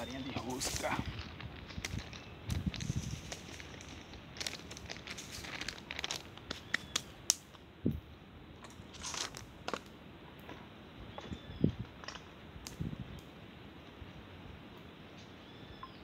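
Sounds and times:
plastic bag crinkling: 0.5 - 6.4.

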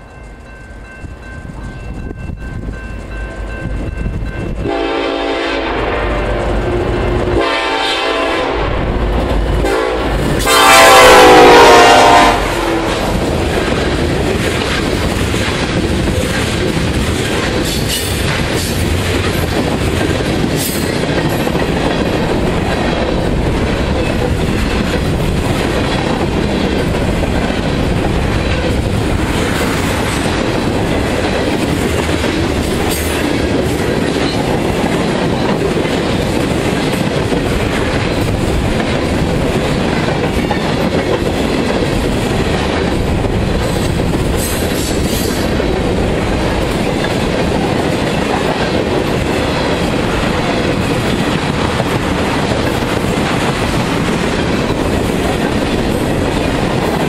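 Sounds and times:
locomotive air horn blast: 4.6 - 8.9, 9.6 - 13.0
train wheels clattering over rails: 9.0 - 57.0.

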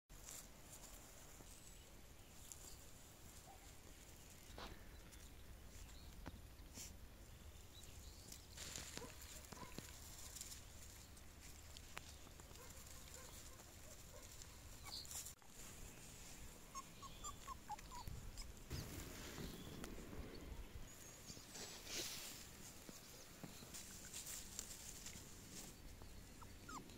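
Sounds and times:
puppies rustling in grass: 0.1 - 26.9
puppy high squeaks: 16.7 - 18.6, 26.4 - 26.9.

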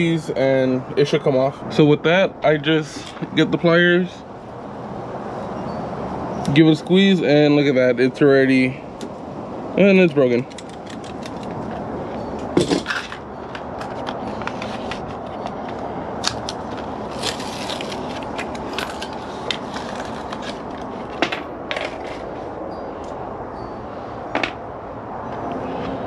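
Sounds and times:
small parts clicking: 10.1 - 11.6.

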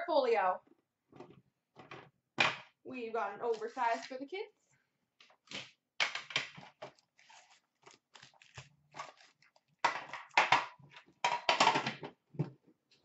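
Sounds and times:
foil wrappers crinkling: 6.8 - 9.8.

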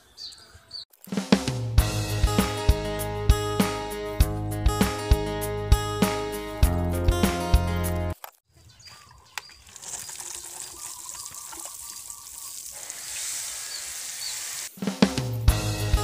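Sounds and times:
guitar music: 1.8 - 8.2
water showering onto soil: 9.6 - 14.8.

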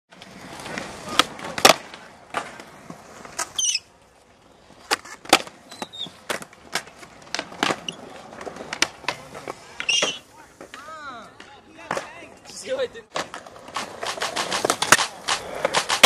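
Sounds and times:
skateboard wheels rolling on concrete: 0.1 - 16.0
skateboard wooden clacks: 4.8 - 16.0.

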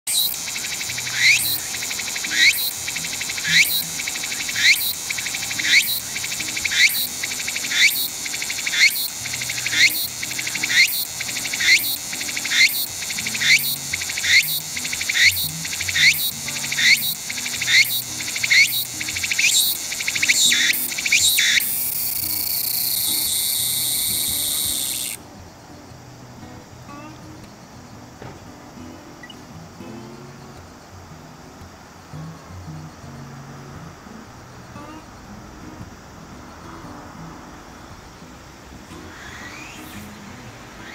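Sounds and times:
cicada singing: 0.1 - 28.4, 29.0 - 40.9
cicada steady buzz: 0.1 - 40.9.

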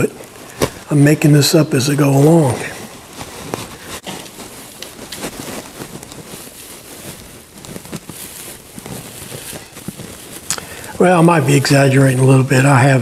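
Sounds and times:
crackly rustling of wood shavings: 0.0 - 13.0.

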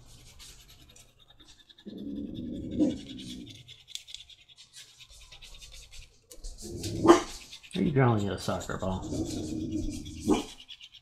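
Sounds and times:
dog growling: 1.8 - 3.7, 8.7 - 10.6
dauber rubbing on leather: 2.6 - 11.0.

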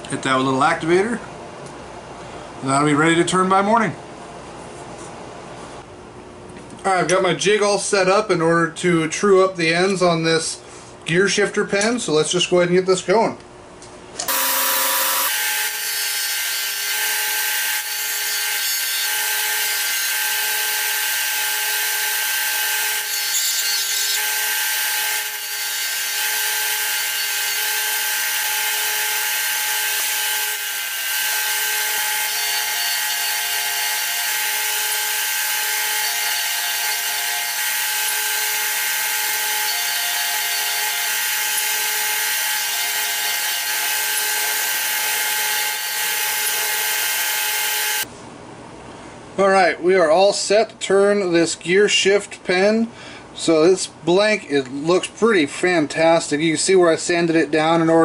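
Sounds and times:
disc sander running: 14.3 - 48.0.

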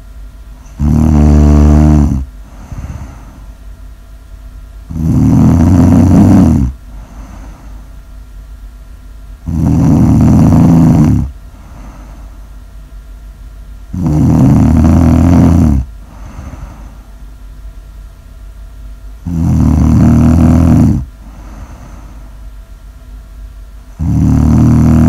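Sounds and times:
person snoring loudly: 0.7 - 3.4, 4.9 - 7.7, 9.4 - 12.2, 13.9 - 17.0, 19.2 - 22.1, 24.0 - 25.0
soft breathing: 2.4 - 3.7, 5.6 - 8.0, 10.1 - 12.6, 14.8 - 17.3, 20.0 - 22.5.

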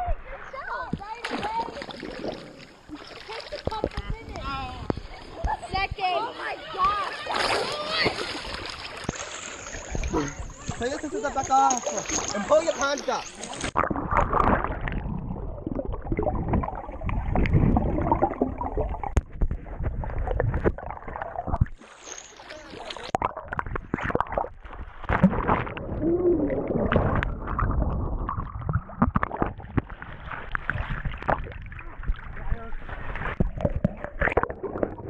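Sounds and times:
underwater rushing and gurgling: 0.0 - 35.0
water splashing: 0.0 - 35.0
knocks underwater: 13.6 - 21.8, 22.8 - 35.0.

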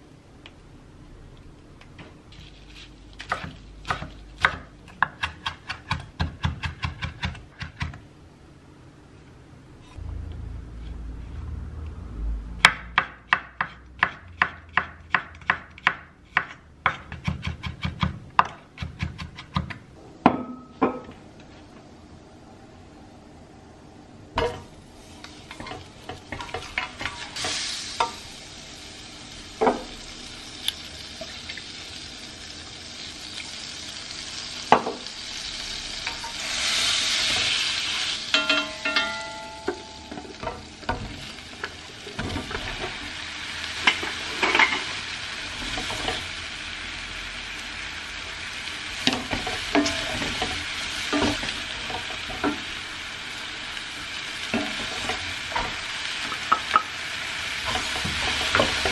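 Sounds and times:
mushrooms sizzling: 24.4 - 58.9
butter sizzling in a skillet: 25.0 - 38.5, 39.8 - 58.9
short metallic rings: 38.3 - 40.1.

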